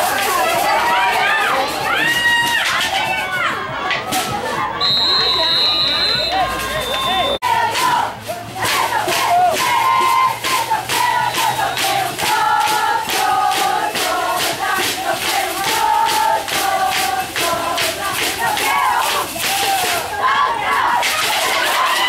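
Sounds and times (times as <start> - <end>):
crowd chanting: 0.0 - 22.0
fast beat of sharp strikes: 7.6 - 20.2.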